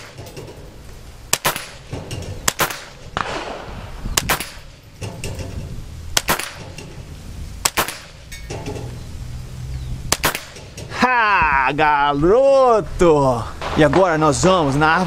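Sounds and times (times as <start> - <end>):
steel plate target clanging: 0.0 - 0.8, 1.4 - 3.4, 4.3 - 9.0, 10.1 - 11.0
rifle shots: 1.3 - 4.8, 6.1 - 6.8, 7.6 - 8.2, 10.1 - 10.6.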